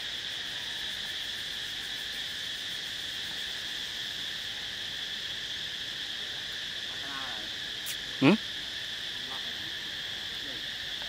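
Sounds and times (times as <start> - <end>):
insect chorus drone: 0.0 - 11.0.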